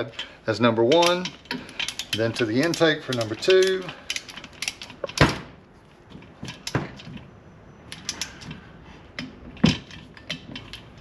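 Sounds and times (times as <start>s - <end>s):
ratchet wrench clicking: 0.9s - 5.0s.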